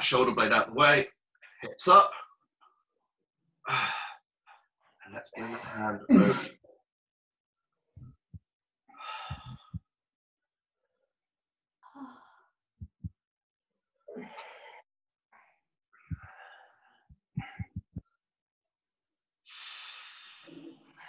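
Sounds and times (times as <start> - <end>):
person breathing hard: 9.0 - 9.9, 19.5 - 20.5.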